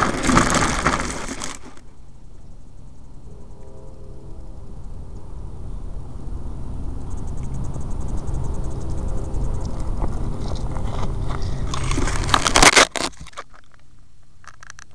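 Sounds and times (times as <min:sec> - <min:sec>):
crackling crunching rustle in grass: 0:00.0 - 0:01.9, 0:10.0 - 0:14.9
low rumble: 0:00.0 - 0:12.8.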